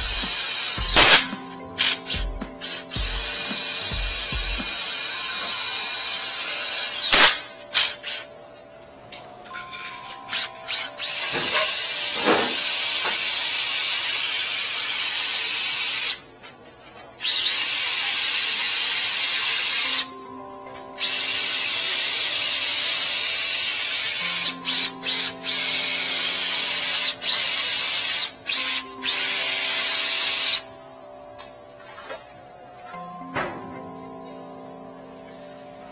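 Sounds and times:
cordless drill whirring: 0.0 - 1.2, 1.8 - 8.3, 10.3 - 16.2, 17.2 - 20.1, 21.0 - 30.6.

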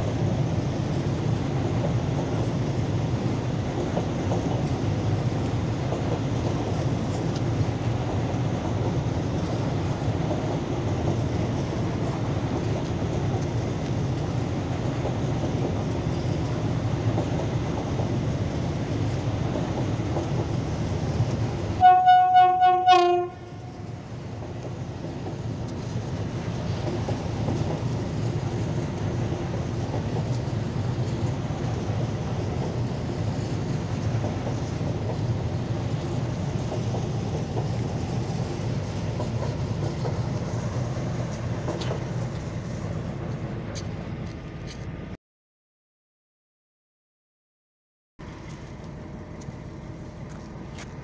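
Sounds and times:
diesel locomotive engine rumble: 0.0 - 45.2, 48.2 - 51.0
locomotive horn: 21.8 - 23.8.

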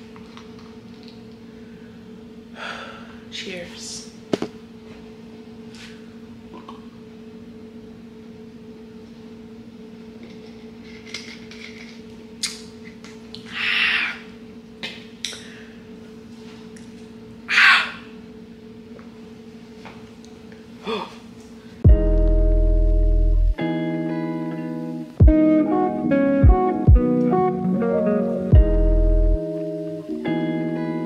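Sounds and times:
low hum: 21.8 - 23.6, 28.0 - 30.2.

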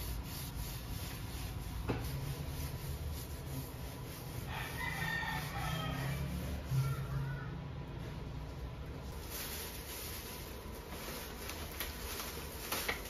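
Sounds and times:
cloth rubbing on tiles: 0.0 - 7.2
rooster crowing: 4.5 - 7.5.

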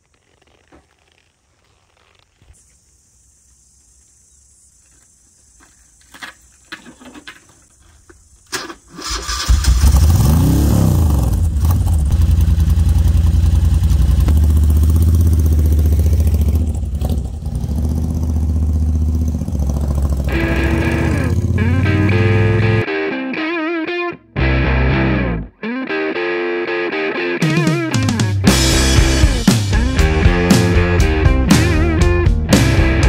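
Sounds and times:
motorcycle engine running: 9.8 - 22.8, 28.0 - 33.0.

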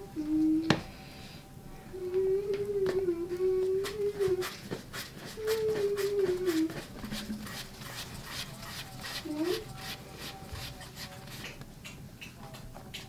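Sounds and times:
person humming a tune: 0.0 - 4.6, 5.3 - 7.4, 9.2 - 10.4.

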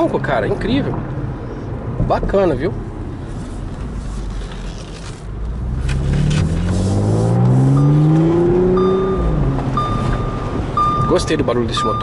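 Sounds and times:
car engine revving from cabin: 5.5 - 11.1.

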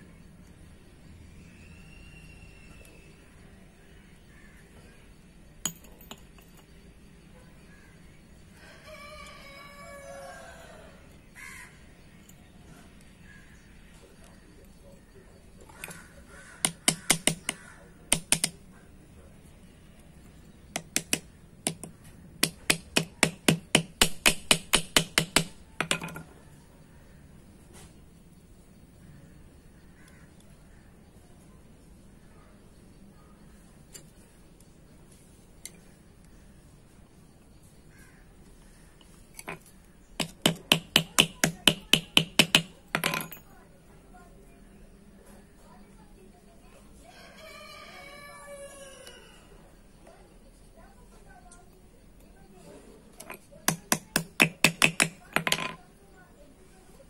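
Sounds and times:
hammer tapping metal rivet: 5.6 - 6.6, 16.6 - 18.6, 20.7 - 26.2, 40.2 - 43.4, 53.2 - 55.8
metallic knocks: 20.8 - 26.3, 53.2 - 55.8.

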